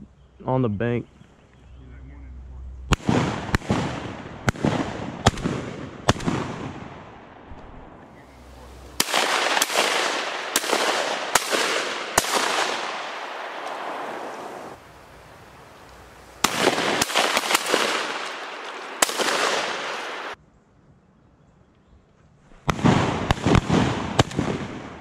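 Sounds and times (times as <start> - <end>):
shotgun shots echoing: 2.9 - 14.8, 16.2 - 20.4, 22.7 - 25.0.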